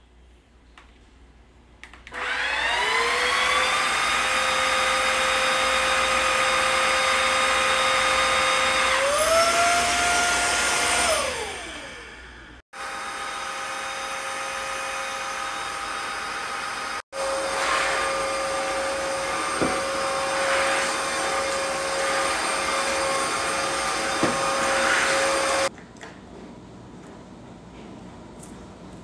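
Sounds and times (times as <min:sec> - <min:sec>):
vacuum motor whir: 0:02.1 - 0:25.7
vacuum hiss: 0:09.9 - 0:25.7.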